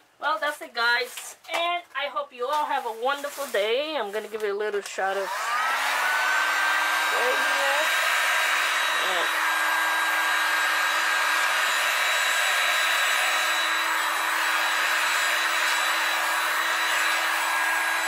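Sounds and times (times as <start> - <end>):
heat gun blowing air: 5.1 - 18.0.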